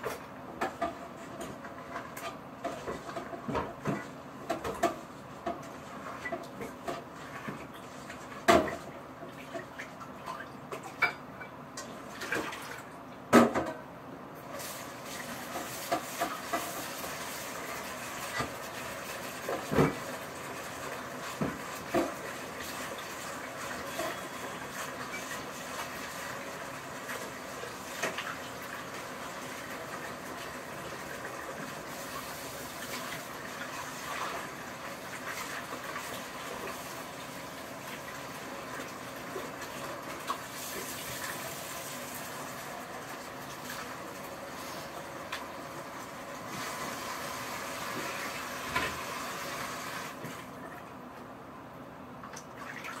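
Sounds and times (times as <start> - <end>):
running water: 14.5 - 51.0.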